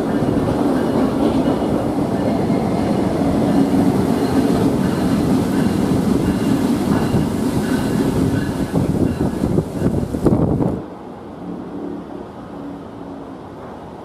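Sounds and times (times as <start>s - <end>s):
diesel locomotive engine droning: 0.0s - 14.0s.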